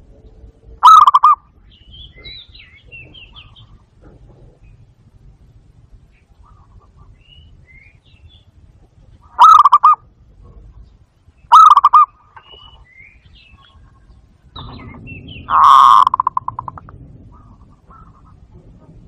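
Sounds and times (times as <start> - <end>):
low rumble: 0.0 - 11.5, 12.1 - 19.0
small birds chirping: 0.0 - 18.6
dove rapid staccato cooing: 0.8 - 1.4, 9.3 - 10.1, 11.5 - 12.1, 14.9 - 19.0.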